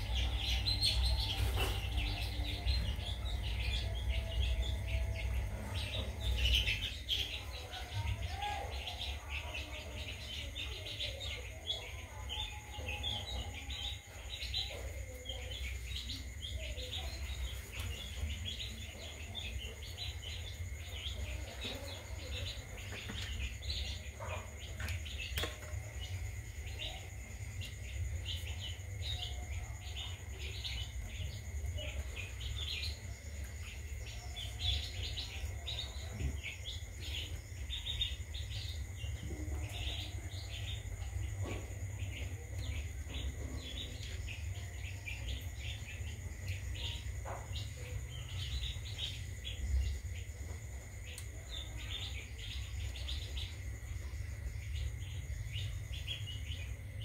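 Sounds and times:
steady low hum: 0:00.0 - 0:57.0.

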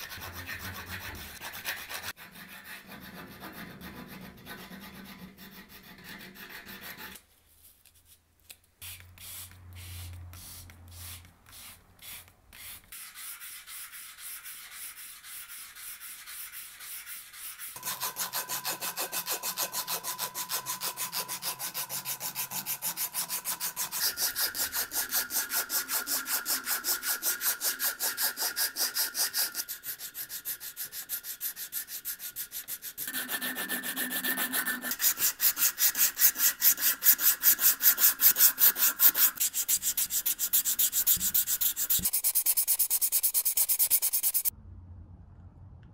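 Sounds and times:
sandpaper rubbing on wood: 0:00.0 - 0:03.6, 0:08.8 - 0:44.5
hacksaw cut: 0:12.6 - 0:44.5.

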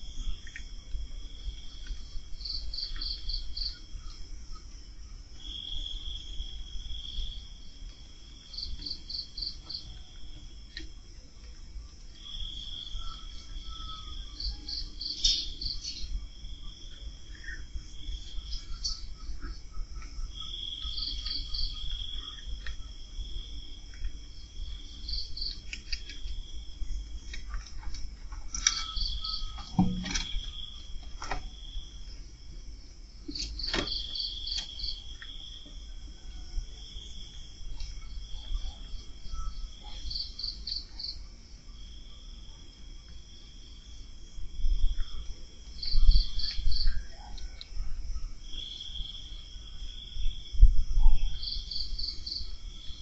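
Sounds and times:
cricket pulsed chirps: 0:00.0 - 0:53.0
cricket steady trill: 0:00.0 - 0:53.0.

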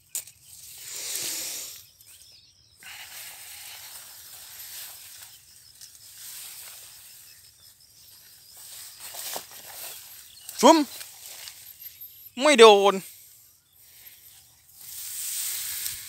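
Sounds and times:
rice plants rustling: 0:02.8 - 0:11.7, 0:13.8 - 0:16.0.

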